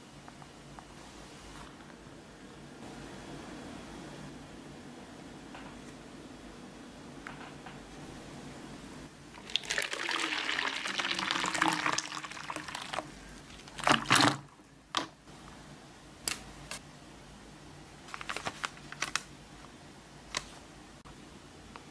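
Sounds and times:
water pouring into plastic bowl: 9.4 - 14.5.

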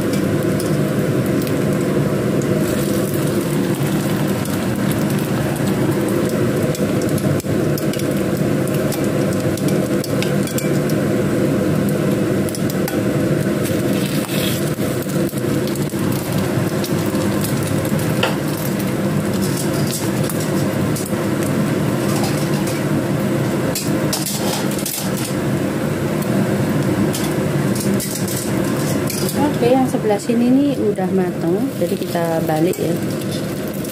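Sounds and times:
food sizzling in oil: 0.0 - 33.9
sharp crackles and pops: 0.1 - 11.0, 11.8 - 22.8.

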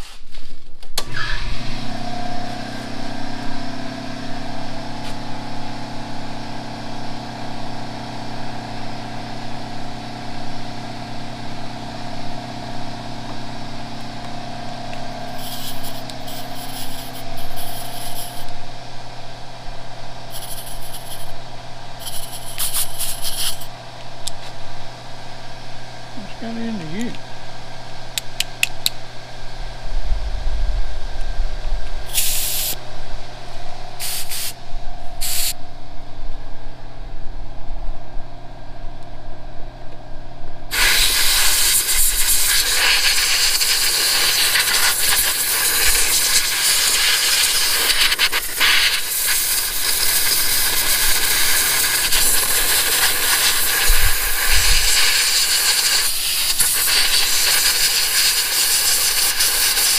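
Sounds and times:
compressed air hissing: 15.3 - 18.5, 20.3 - 21.4, 22.0 - 23.7, 32.1 - 32.8, 34.0 - 34.6, 35.2 - 35.6, 40.7 - 59.9.

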